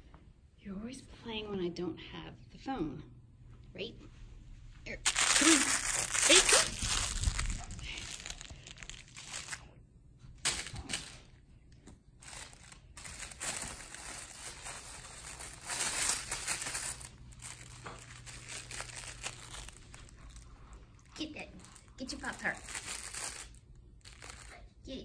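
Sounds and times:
rustling and crinkling: 0:04.0 - 0:24.7.

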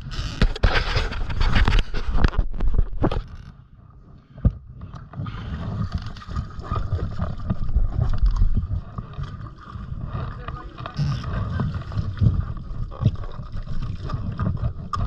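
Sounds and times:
water splashing and sloshing: 0:04.2 - 0:15.0.

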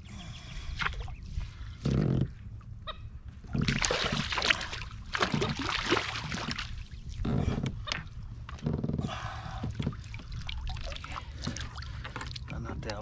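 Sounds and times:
fish splashing in water: 0:03.6 - 0:07.0.

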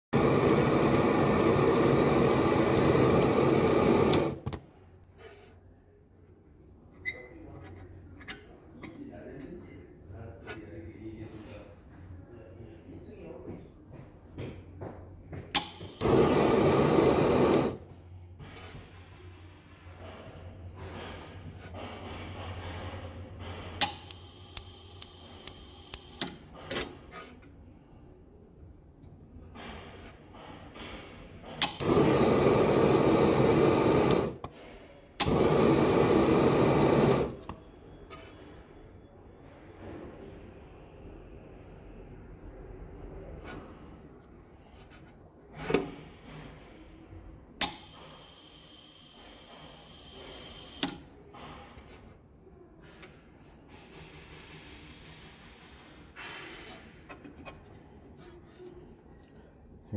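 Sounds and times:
gas burner flame rushing: 0:00.1 - 0:04.7, 0:15.6 - 0:19.0, 0:20.8 - 0:27.2, 0:29.6 - 0:37.6, 0:47.6 - 0:52.0
ignition electrode ticking: 0:00.2 - 0:04.4, 0:23.8 - 0:26.4
igniter sparking clicks: 0:00.2 - 0:04.6, 0:15.6 - 0:17.8, 0:23.8 - 0:26.4, 0:31.6 - 0:34.4, 0:35.2 - 0:37.6, 0:47.6 - 0:48.1, 0:50.3 - 0:51.0.

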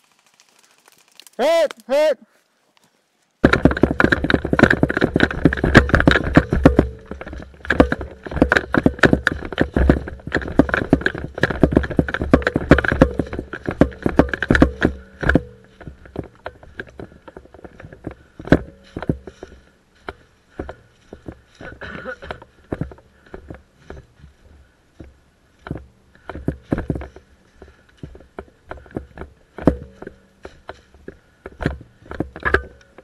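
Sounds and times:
running footsteps on dry leaves: 0:00.0 - 0:24.6.

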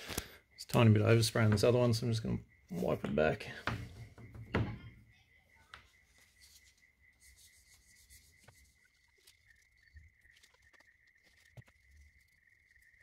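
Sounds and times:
knock: 0:03.6 - 0:04.9
faint steady high tone: 0:04.3 - 0:13.0
soft hand rubbing: 0:06.0 - 0:09.5.

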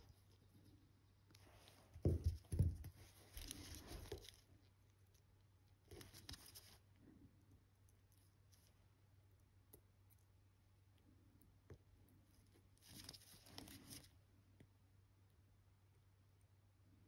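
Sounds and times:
soft rustle: 0:00.0 - 0:09.3, 0:12.1 - 0:14.2
low steady hum: 0:00.0 - 0:17.0.

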